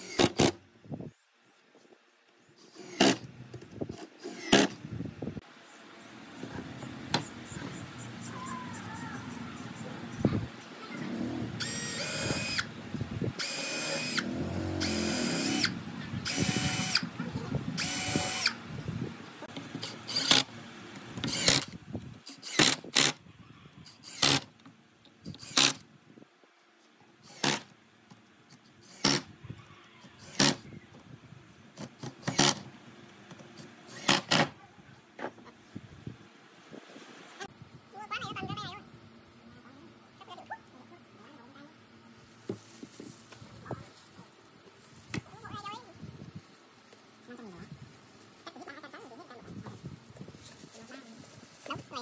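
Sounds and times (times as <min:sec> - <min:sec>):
cordless drill whining: 0:11.6 - 0:12.7, 0:13.4 - 0:17.1, 0:17.8 - 0:18.6
impact driver bursts: 0:17.8 - 0:18.6.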